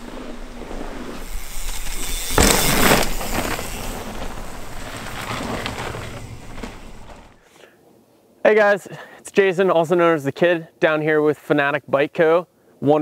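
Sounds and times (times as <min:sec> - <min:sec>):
bike tyres rolling on dirt: 0:00.0 - 0:07.4.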